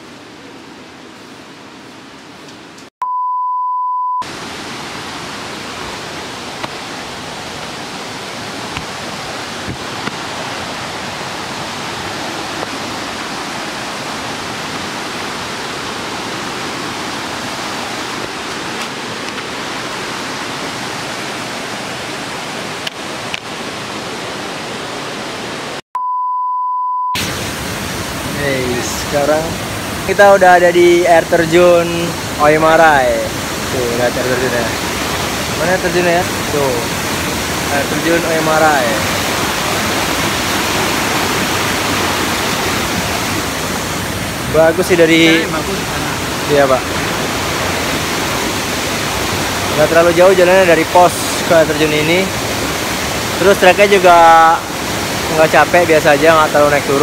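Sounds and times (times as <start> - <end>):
rushing waterfall: 0.0 - 2.9, 4.2 - 25.8, 27.2 - 57.0
beep tone: 3.0 - 4.2, 25.9 - 27.2.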